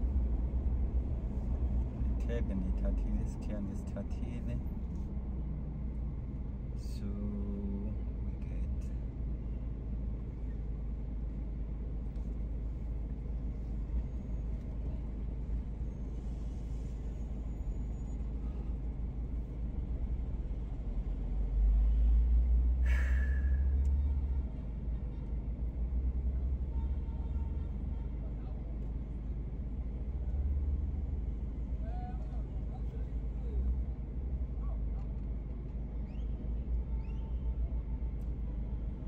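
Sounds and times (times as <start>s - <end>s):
car engine and tyres rumbling: 0.0s - 39.0s.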